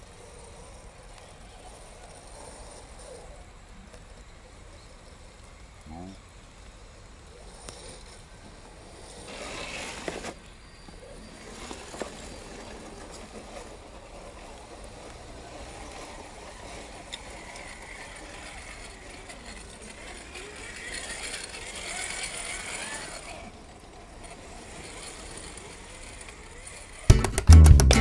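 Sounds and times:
rc truck motors whining: 0:00.0 - 0:27.1
sharp clicks: 0:27.1 - 0:28.0.

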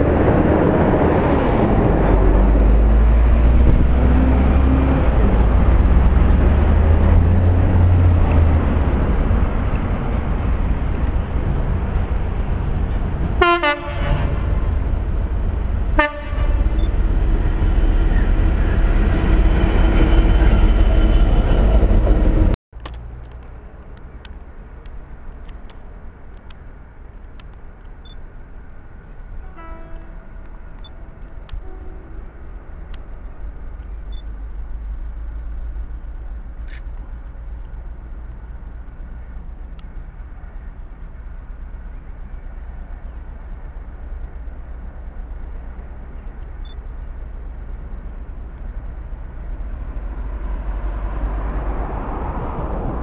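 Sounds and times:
diesel engine rumble: 0:00.0 - 0:53.0
locomotive horn: 0:13.4 - 0:14.7, 0:15.9 - 0:21.8, 0:29.4 - 0:32.5.

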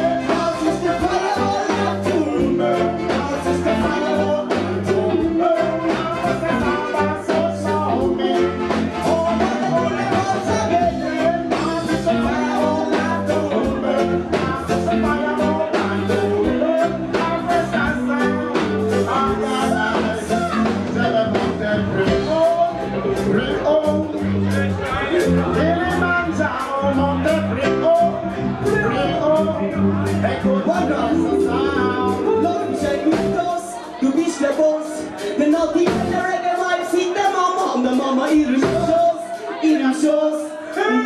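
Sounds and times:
person singing: 0:00.0 - 0:22.7, 0:30.4 - 0:36.7
live reggae band: 0:00.0 - 0:41.0
electric guitar: 0:28.4 - 0:34.3.

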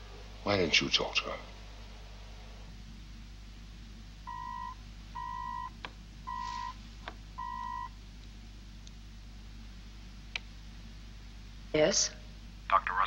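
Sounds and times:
communicator beeping: 0:04.3 - 0:05.7, 0:06.3 - 0:06.8, 0:07.4 - 0:07.9.

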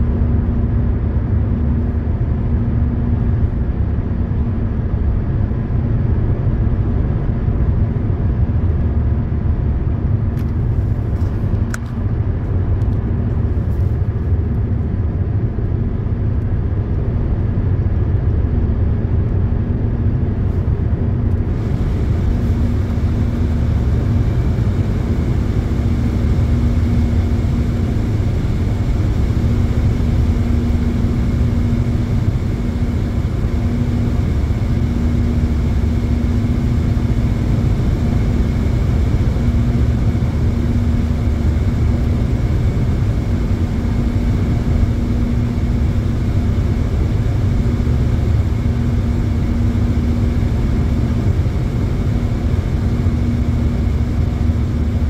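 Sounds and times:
car engine drone: 0:00.0 - 0:55.0
road and tyre noise: 0:00.0 - 0:55.0
low hum: 0:19.9 - 0:55.0.

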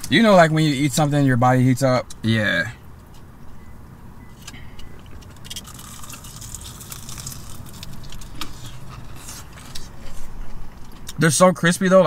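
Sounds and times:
crunching fried chicken: 0:05.2 - 0:10.2.

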